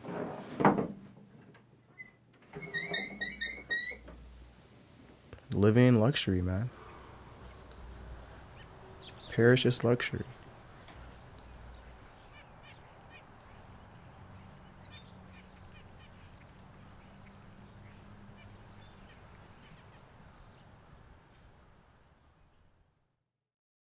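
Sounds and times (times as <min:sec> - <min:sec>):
low steady hum: 0:02.5 - 0:22.6
small birds chirping: 0:06.5 - 0:22.8.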